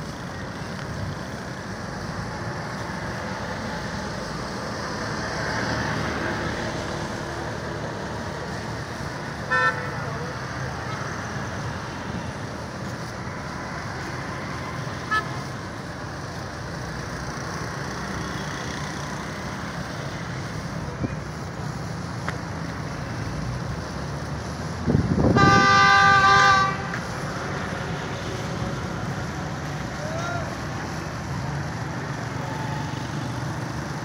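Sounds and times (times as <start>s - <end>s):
road traffic noise: 0.0s - 34.0s
vehicle horn: 9.4s - 10.1s, 15.1s - 15.4s, 25.3s - 27.0s.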